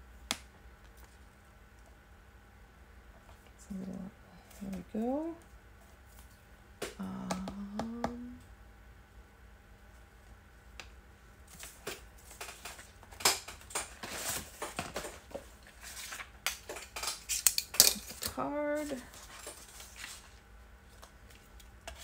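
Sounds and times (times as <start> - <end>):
papers rustling: 11.5 - 22.0.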